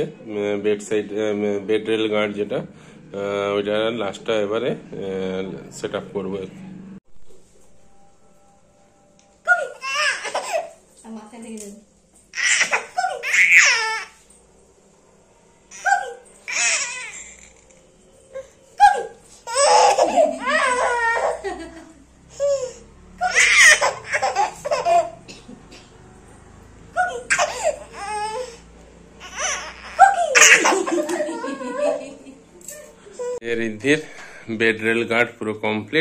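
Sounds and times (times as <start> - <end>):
baby laughing: 9.5 - 10.8, 12.4 - 14.1, 18.8 - 25.3, 27.0 - 28.6, 29.2 - 32.4.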